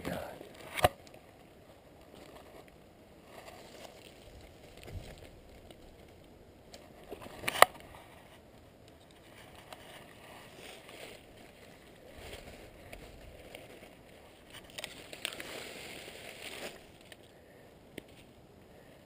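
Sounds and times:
faint crackles: 0.0 - 19.0
footsteps in dry leaves: 10.0 - 17.2.

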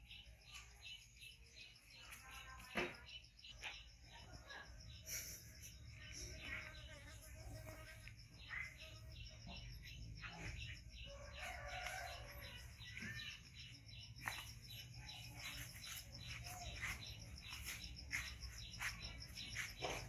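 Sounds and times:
rooster crowing: 11.0 - 13.4.

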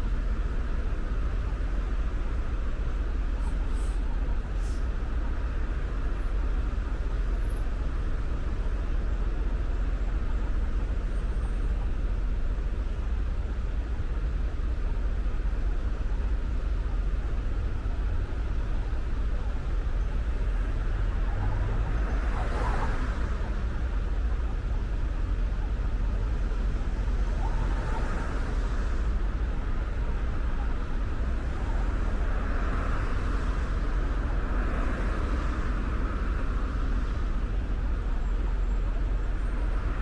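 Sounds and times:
car road noise rumble: 0.0 - 40.0
road hiss: 2.9 - 6.0.

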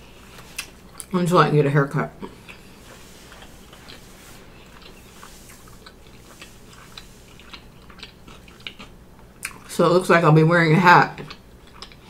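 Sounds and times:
person chewing food: 0.0 - 1.1, 2.2 - 9.7, 11.2 - 12.0.

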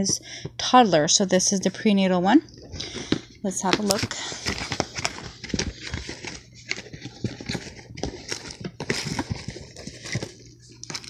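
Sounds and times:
paper rustling and crinkling: 2.7 - 11.0
cardboard box opening: 3.7 - 11.0.

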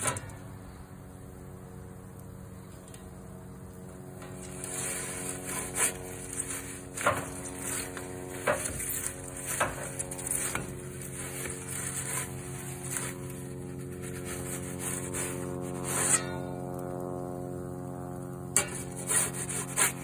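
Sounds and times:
metal peel scraping stone: 4.2 - 16.6, 18.6 - 20.0.

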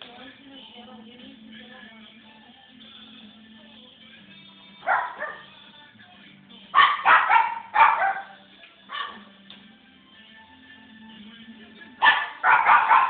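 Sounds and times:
faint background music: 0.0 - 13.0
dog barking: 4.8 - 5.5, 6.8 - 9.3, 12.0 - 13.0.

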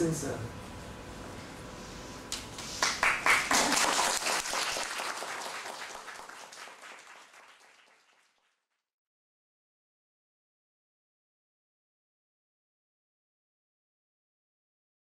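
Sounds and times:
audience applauding: 2.8 - 8.6.

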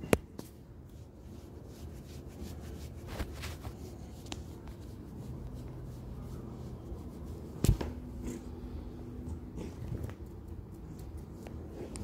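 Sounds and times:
fingers rubbing cat fur: 0.4 - 8.4.

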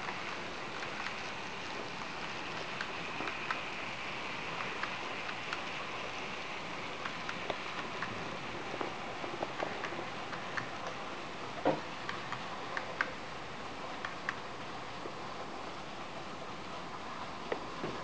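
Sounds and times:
wheels clicking on rails: 0.0 - 13.2
model train rolling on track: 0.0 - 18.0.

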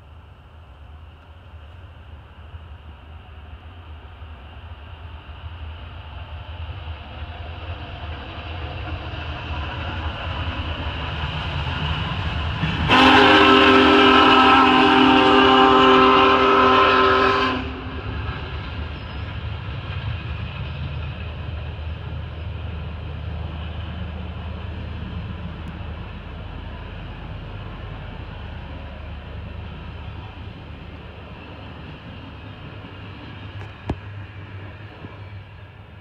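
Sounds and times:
rumble of passenger cars rolling: 0.0 - 36.0
steam locomotive whistle blast: 12.8 - 18.1.

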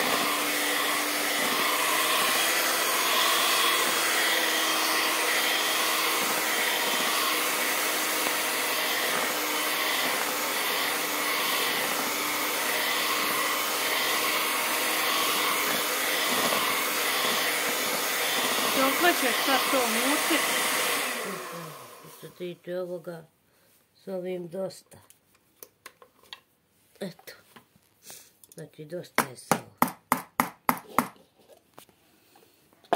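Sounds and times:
electric hand mixer whirring: 0.0 - 22.5.

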